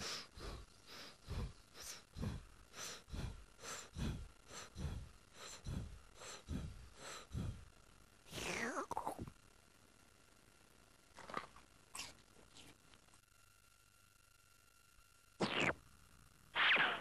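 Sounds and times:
cartoon snail panting: 0:00.0 - 0:07.7.

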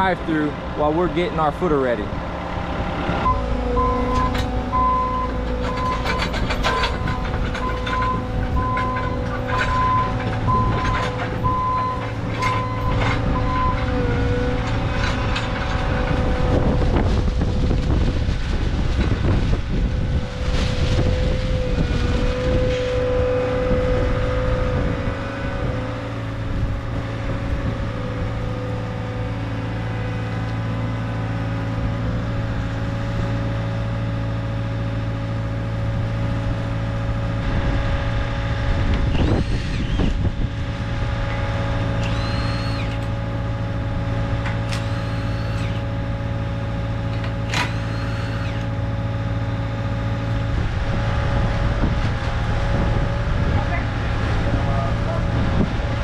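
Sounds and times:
diesel engine running: 0:00.0 - 0:56.0
short high squeaks: 0:39.1 - 0:40.2, 0:42.0 - 0:43.1, 0:44.7 - 0:45.9, 0:47.5 - 0:48.8.

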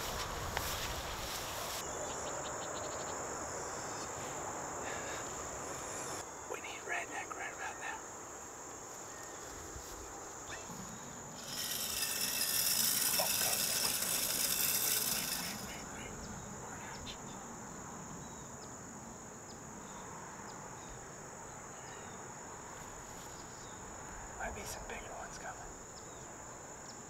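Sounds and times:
crickets and insects droning: 0:00.0 - 0:27.0
rasping insect buzz: 0:04.7 - 0:17.8.

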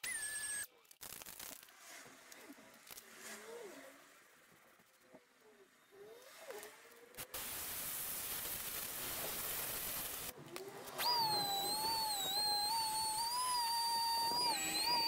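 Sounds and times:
air sander whining: 0:09.1 - 0:15.0.

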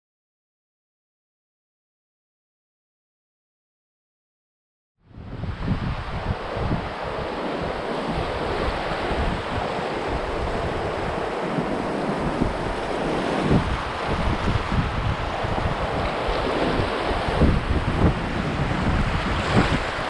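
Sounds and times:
wind buffeting microphone: 0:05.1 - 0:20.0
river water through rapids: 0:05.4 - 0:20.0.

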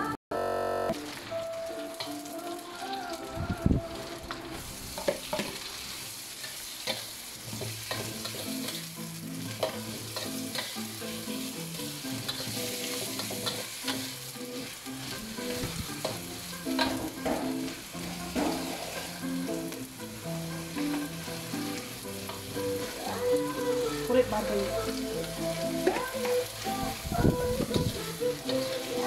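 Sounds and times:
food sizzling in a wok: 0:00.9 - 0:29.0
metal spatula scraping wok: 0:09.6 - 0:19.7.

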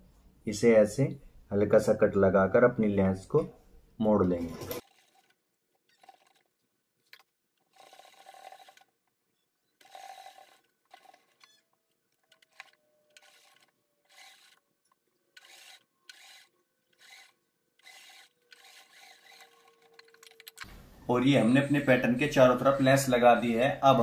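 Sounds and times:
sewing machine stitching: 0:04.4 - 0:14.6, 0:15.3 - 0:20.6.

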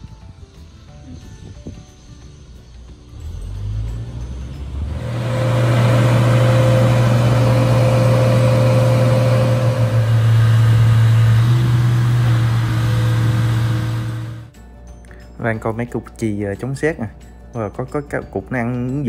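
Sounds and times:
diesel engine drone: 0:03.1 - 0:14.6.

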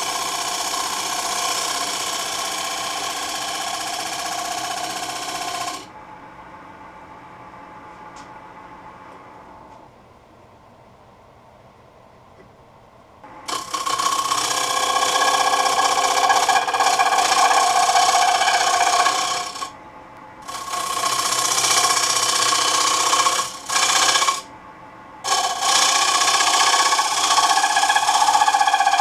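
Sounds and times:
lathe gouge rasping wood: 0:00.0 - 0:05.8, 0:13.5 - 0:19.7, 0:20.4 - 0:24.5, 0:25.3 - 0:29.0.

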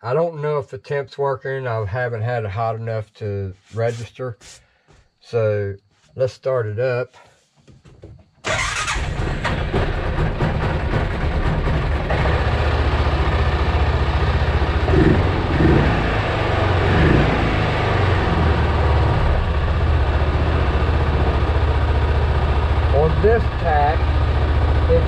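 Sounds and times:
engine idling: 0:08.4 - 0:25.0.

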